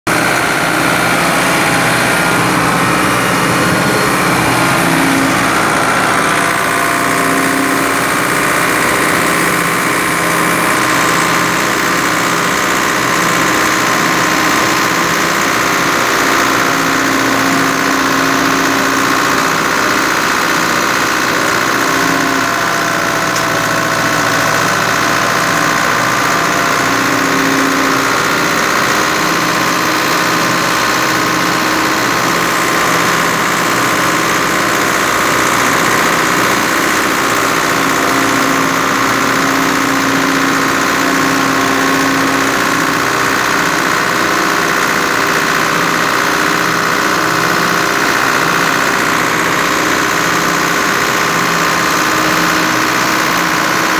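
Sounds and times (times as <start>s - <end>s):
tractor diesel engine running: 0.0s - 53.9s.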